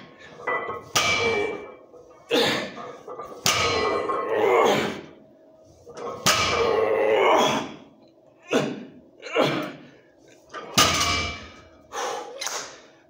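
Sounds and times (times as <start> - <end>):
heavy breaths and grunts: 0.0 - 5.2
barbell plates hitting floor: 0.4 - 1.7, 3.3 - 4.3, 6.0 - 6.9, 10.6 - 11.7.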